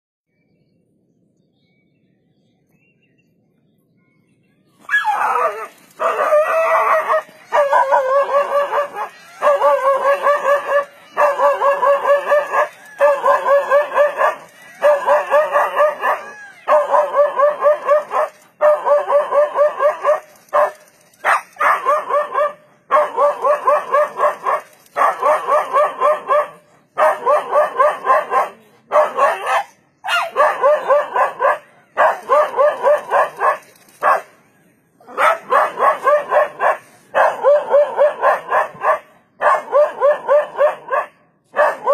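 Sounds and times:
dog barking rapidly: 4.9 - 34.3, 35.1 - 41.9.

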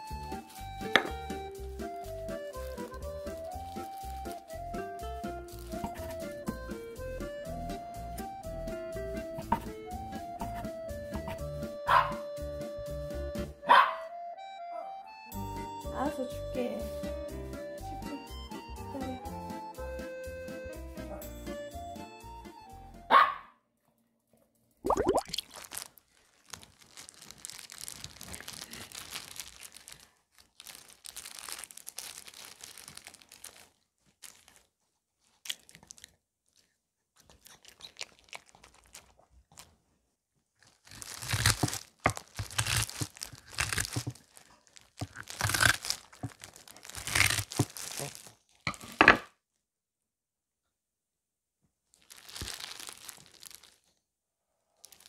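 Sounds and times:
plastic glove crinkling: 0.0 - 6.6, 25.0 - 49.2, 51.9 - 54.0, 54.8 - 55.0
cabbage tearing and crunching: 0.0 - 6.7, 9.1 - 11.5, 25.2 - 39.8, 40.6 - 49.0, 52.0 - 54.0, 54.8 - 55.0
dog barking: 11.9 - 12.2, 13.6 - 14.1, 23.1 - 23.6.

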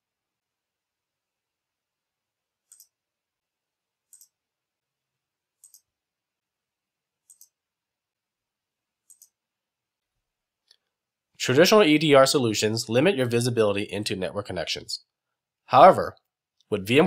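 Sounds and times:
faint computer mouse clicks: 2.6 - 3.0, 4.1 - 4.4, 5.6 - 5.9, 7.2 - 7.6, 9.0 - 9.4.

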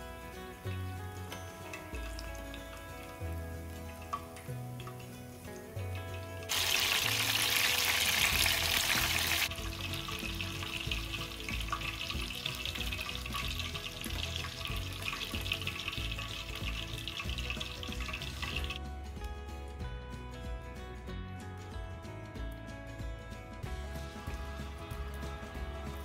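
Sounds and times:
deep-frying sizzle in oil: 0.1 - 18.8.

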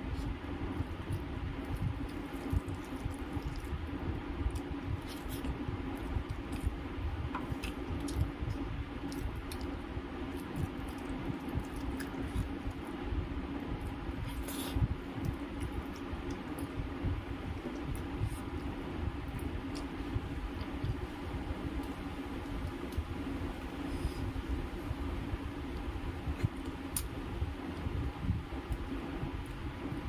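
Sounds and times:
steady low hum: 0.0 - 30.0
person chewing: 0.1 - 13.0
fingers squishing rice and curry: 0.1 - 16.8.

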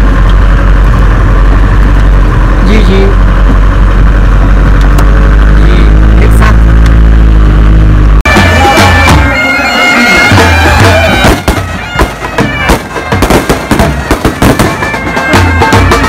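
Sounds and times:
loud drum beats: 8.2 - 16.0
reed pipes playing: 8.2 - 16.0.

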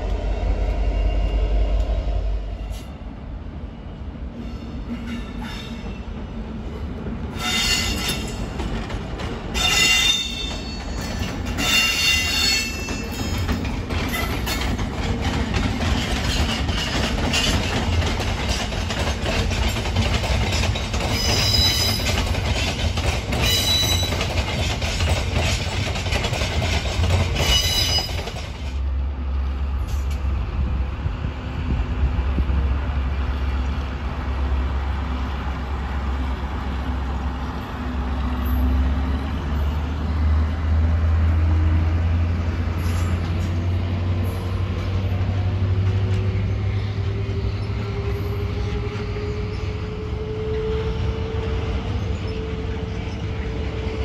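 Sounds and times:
diesel train rumbling past: 0.0 - 54.0
low locomotive engine drone: 0.0 - 54.0
high wheel squeals: 7.4 - 8.4, 9.5 - 13.4, 21.0 - 22.2, 23.4 - 24.3, 27.4 - 28.3.

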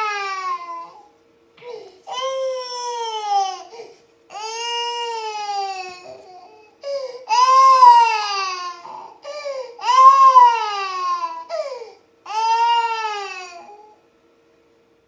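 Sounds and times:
toddler crying: 0.0 - 1.0, 2.1 - 14.0
sobbing breaths: 8.9 - 9.8.

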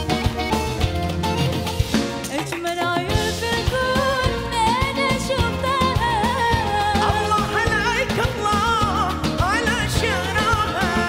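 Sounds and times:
live band with steady beat: 0.0 - 11.0
woman singing with vibrato: 2.3 - 11.0.

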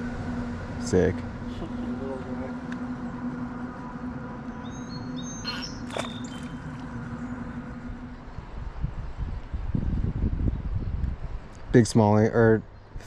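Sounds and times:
steady low hum: 0.0 - 11.8
short bird chirps: 4.7 - 6.6.

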